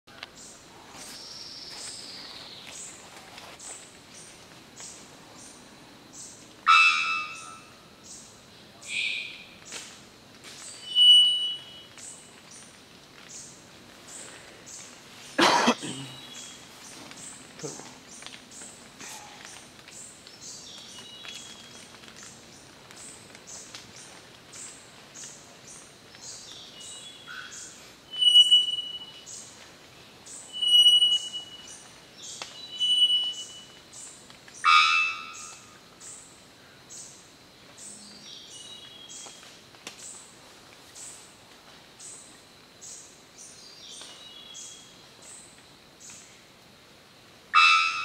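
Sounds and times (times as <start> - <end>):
bird whistling calls: 8.9 - 9.4, 10.8 - 11.9, 27.3 - 29.3, 30.5 - 31.8, 32.6 - 33.7
faint high pulsing chirr: 10.7 - 12.0, 26.8 - 29.5.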